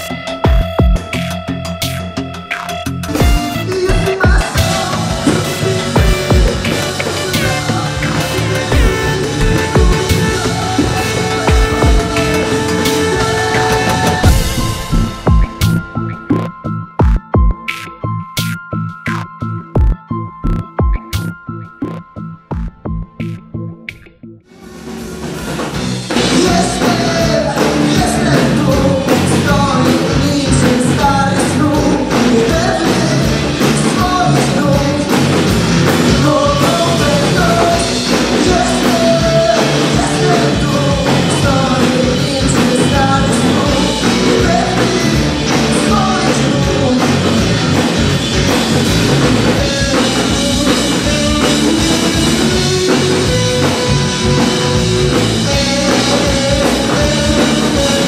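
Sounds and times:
bass guitar: 0:00.0 - 0:58.0
drum kit: 0:00.0 - 0:58.0
electric guitar: 0:00.0 - 0:58.0
man singing: 0:03.0 - 0:16.1, 0:26.1 - 0:58.0.

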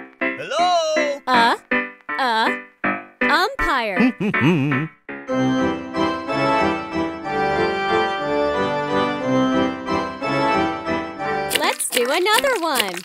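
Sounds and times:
organ music: 0:04.4 - 0:11.5.

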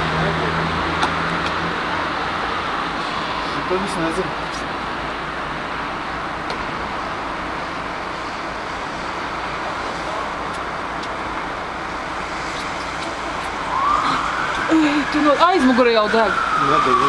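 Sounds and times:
street traffic roar: 0:00.0 - 0:17.0
faint rising siren wail: 0:13.2 - 0:17.0.

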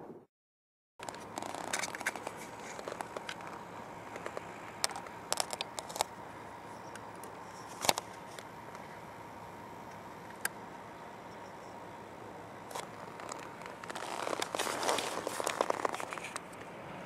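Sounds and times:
light clicks and crackles: 0:01.0 - 0:06.2, 0:12.7 - 0:16.7.

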